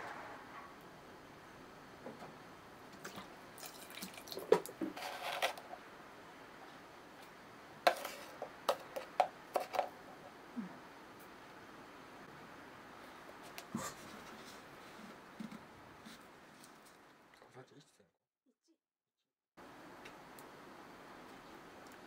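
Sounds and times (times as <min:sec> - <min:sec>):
liquid trickling and dripping: 0:02.9 - 0:04.8.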